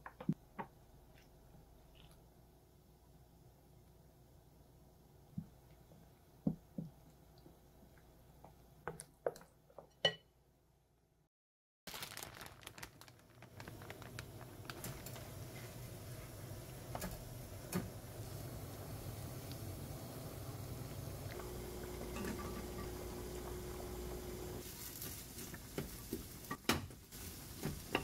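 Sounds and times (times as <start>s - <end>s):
crackles and clicks: 11.9s - 15.8s, 20.8s - 26.6s
water bubbling at a boil: 17.4s - 24.6s.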